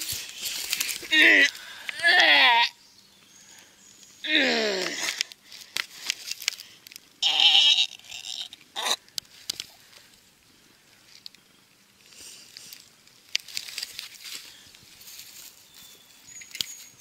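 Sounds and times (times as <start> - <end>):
rustling and handling noise: 0.0 - 2.0, 4.8 - 7.2, 9.0 - 17.0
person crying out: 1.0 - 2.8, 4.3 - 5.2, 7.2 - 8.0.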